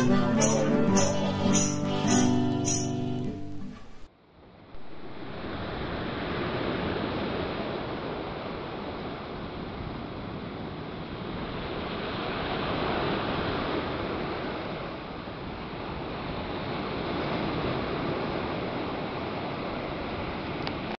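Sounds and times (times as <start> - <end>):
surf washing over pebbles: 4.8 - 9.3.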